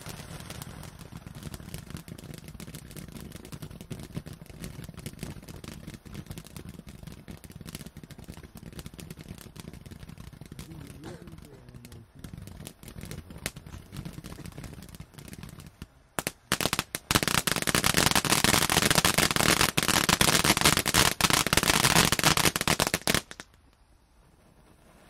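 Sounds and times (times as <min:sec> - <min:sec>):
faint firework hiss: 0:00.0 - 0:25.0
firework fountain crackling: 0:00.0 - 0:25.0.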